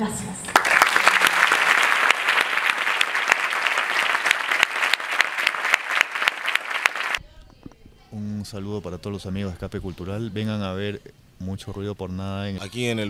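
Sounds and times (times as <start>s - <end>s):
audience applauding: 0.5s - 7.2s.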